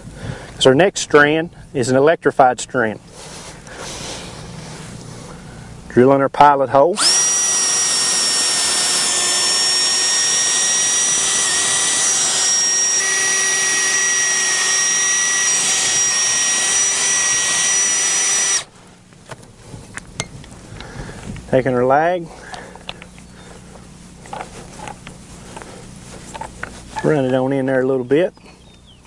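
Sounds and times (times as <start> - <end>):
cordless drill whining: 7.0 - 18.7.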